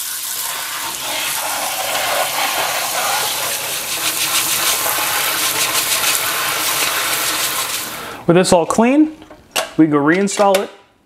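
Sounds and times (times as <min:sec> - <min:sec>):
water spraying on metal mesh: 0:00.8 - 0:08.1.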